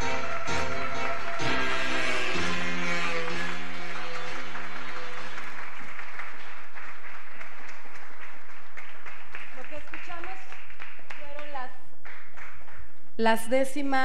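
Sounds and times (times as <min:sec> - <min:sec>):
recorded music: 0:00.0 - 0:04.9
audience applauding: 0:00.0 - 0:12.9.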